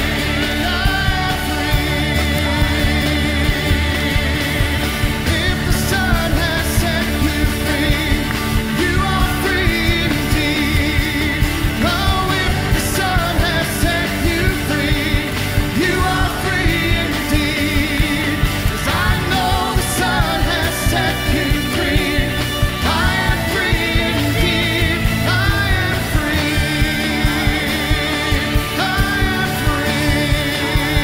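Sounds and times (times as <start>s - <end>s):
band playing upbeat rock song: 0.0s - 31.0s
voices singing: 0.0s - 31.0s.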